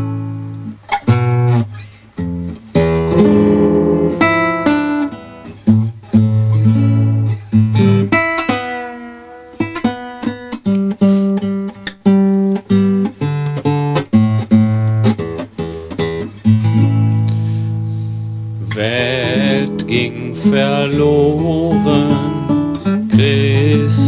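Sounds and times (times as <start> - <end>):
classical guitar: 0.0 - 24.0
man singing held note: 18.7 - 22.5.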